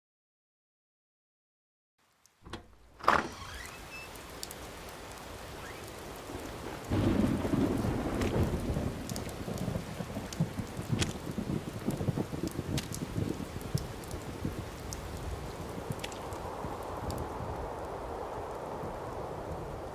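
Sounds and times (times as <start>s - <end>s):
steady rain: 2.0s - 19.9s
low thunder rumble: 6.0s - 19.9s
thunder crack: 6.1s - 14.7s.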